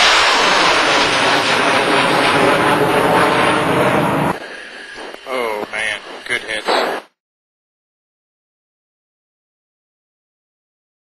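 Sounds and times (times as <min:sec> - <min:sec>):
rocket motor rushing roar: 0:00.0 - 0:07.1.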